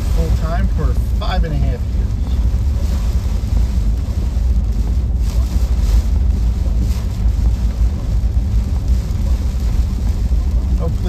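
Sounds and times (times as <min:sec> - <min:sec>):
truck engine and road rumble: 0:00.0 - 0:11.0.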